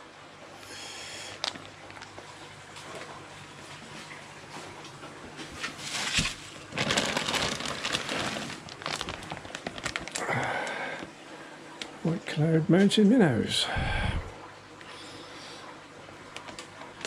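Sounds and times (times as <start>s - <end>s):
plastic bags rustling: 5.6s - 11.1s.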